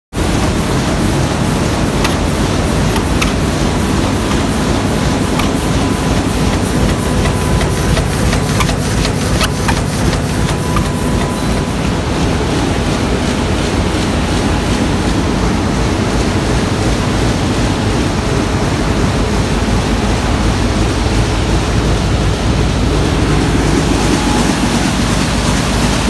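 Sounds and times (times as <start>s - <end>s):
die-cutter machine running: 0.2s - 12.2s
quick regular clicking: 1.5s - 5.8s, 6.4s - 11.4s.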